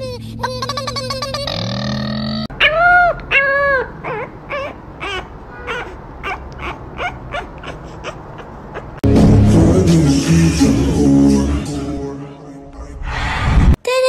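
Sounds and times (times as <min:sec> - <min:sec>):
puppy whimpering: 0:02.5 - 0:09.0
loud music: 0:09.0 - 0:12.6.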